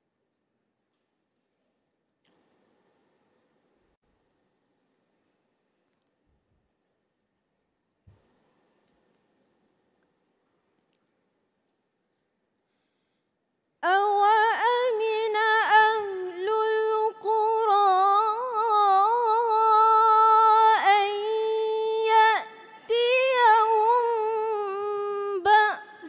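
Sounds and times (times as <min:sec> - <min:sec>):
woman reciting melodically: 0:13.8 - 0:26.0.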